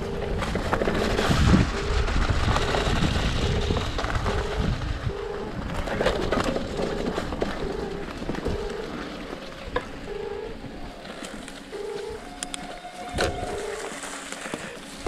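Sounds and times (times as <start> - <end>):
bike rattles and knocks: 0.0 - 10.0
bike tyre and wind rumble: 0.0 - 15.0.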